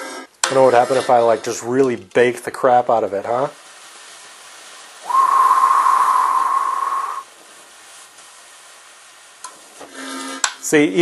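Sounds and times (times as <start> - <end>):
propane torch hissing: 0.5 - 11.0
steady whistle: 5.0 - 7.3.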